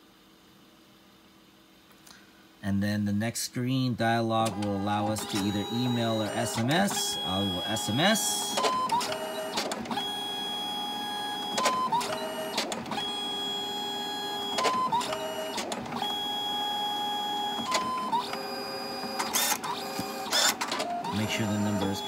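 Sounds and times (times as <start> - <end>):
photo printer whirring: 4.3 - 22.0
printer clicks: 4.4 - 10.0.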